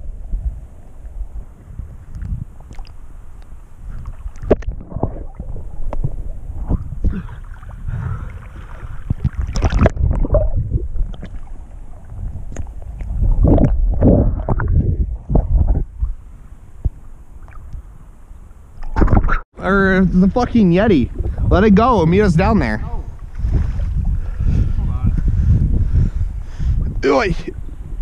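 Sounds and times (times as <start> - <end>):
muffled underwater water sloshing: 2.6 - 19.4.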